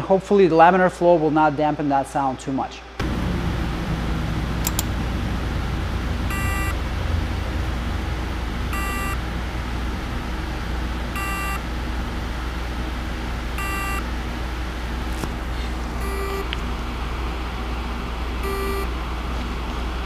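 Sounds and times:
flow hood hum and hiss: 0.0s - 20.0s
hard drive buzzing chirp: 6.3s - 6.8s, 8.7s - 9.2s, 11.1s - 11.7s, 13.6s - 14.2s, 16.0s - 16.5s, 18.4s - 18.9s.

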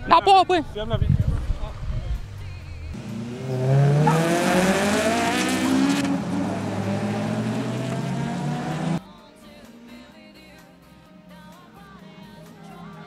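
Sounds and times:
race car engines revving: 3.0s - 9.0s.

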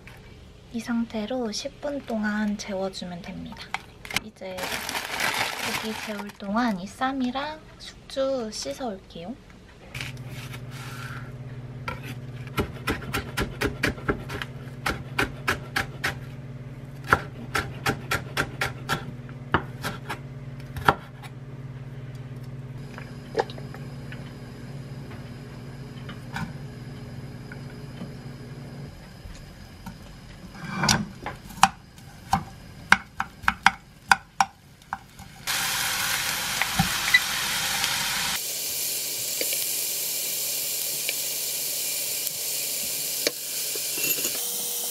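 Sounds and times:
knife chopping on wooden board: 12.5s - 16.3s, 17.0s - 21.3s
food sizzling in oil: 35.1s - 44.9s.

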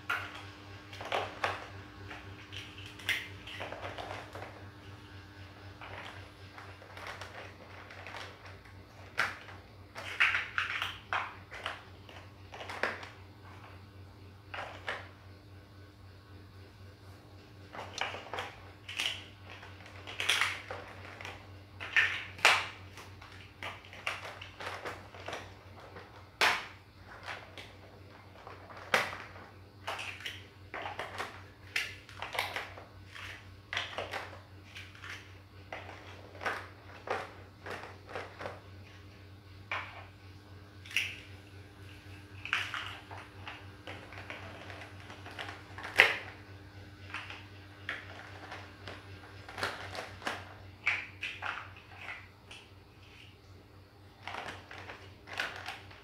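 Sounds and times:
plastic building blocks clicking: 5.8s - 13.2s, 17.8s - 38.6s, 42.4s - 46.4s, 47.1s - 53.2s, 54.2s - 56.0s.

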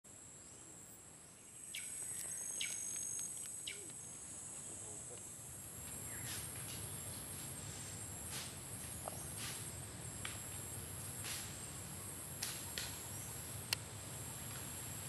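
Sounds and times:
insects droning: 0.1s - 15.0s
bird chirps: 1.5s - 4.2s.

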